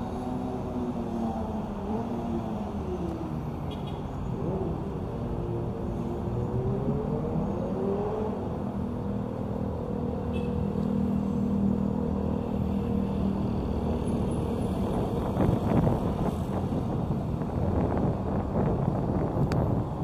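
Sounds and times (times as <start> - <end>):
street noise: 0.0 - 20.0.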